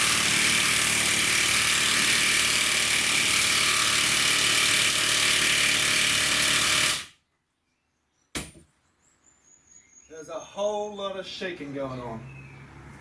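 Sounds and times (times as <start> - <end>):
sharp knock: 8.3 - 8.7.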